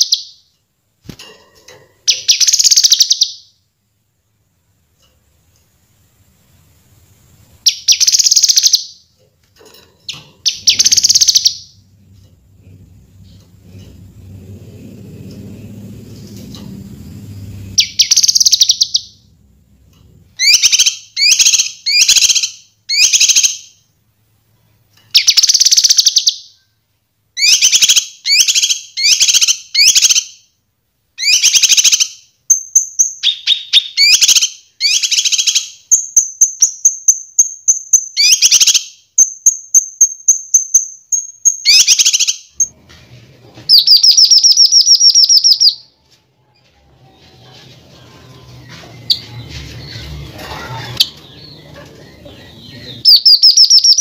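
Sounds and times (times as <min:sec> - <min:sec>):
rapid bird trill: 0:17.7 - 0:19.2, 0:52.7 - 0:54.0
bird singing chattering phrases: 0:48.5 - 0:54.0.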